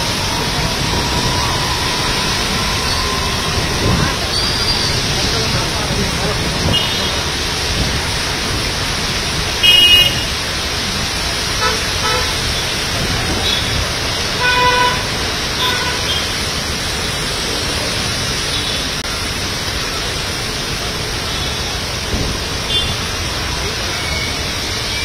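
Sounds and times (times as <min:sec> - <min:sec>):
heavy rain: 0:00.0 - 0:25.0
traffic on wet road: 0:00.0 - 0:25.0
vehicle horn toots: 0:06.7 - 0:07.1, 0:09.6 - 0:10.4, 0:11.6 - 0:12.4, 0:14.4 - 0:16.2, 0:22.7 - 0:23.0.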